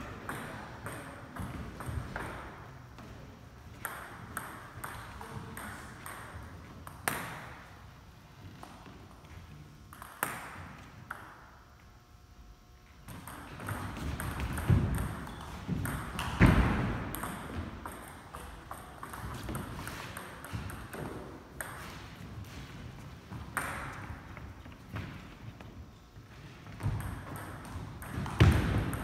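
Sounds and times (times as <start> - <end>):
ping pong ball clicking: 9.9 - 10.5.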